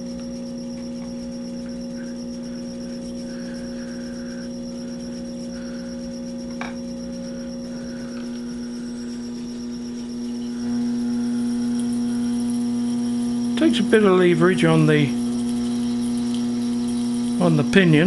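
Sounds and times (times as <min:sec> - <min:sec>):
lathe motor humming with whine: 0:00.0 - 0:18.0.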